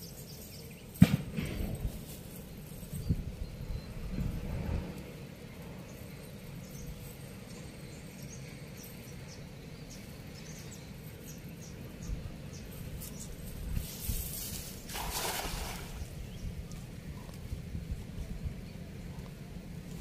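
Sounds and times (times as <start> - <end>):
wind rumble on microphone: 1.0 - 5.8, 12.0 - 20.0.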